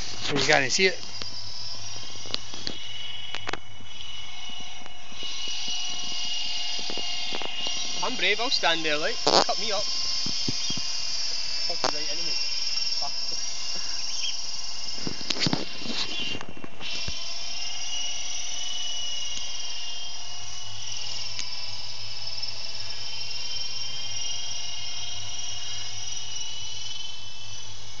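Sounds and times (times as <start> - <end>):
model helicopter rotor whine: 0.0 - 28.0.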